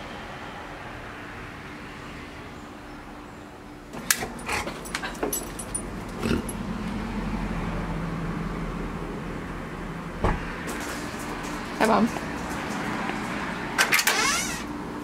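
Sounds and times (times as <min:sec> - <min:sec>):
sharp clicks and clinks: 0:04.0 - 0:06.6.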